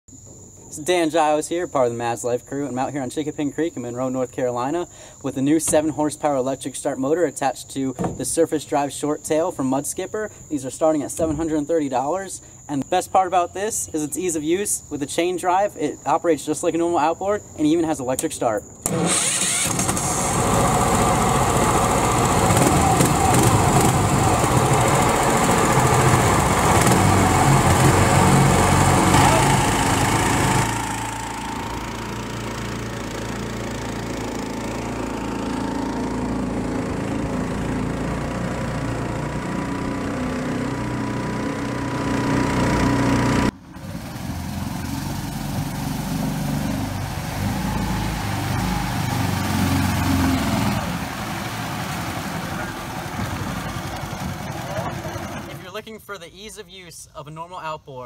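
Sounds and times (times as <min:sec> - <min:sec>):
small boat engine running: 0:18.8 - 0:55.6.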